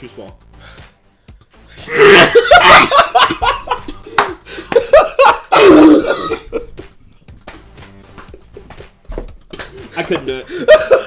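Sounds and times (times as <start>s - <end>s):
man gagging and coughing: 1.9s - 6.7s
man laughing hard: 1.9s - 6.7s, 10.5s - 11.0s.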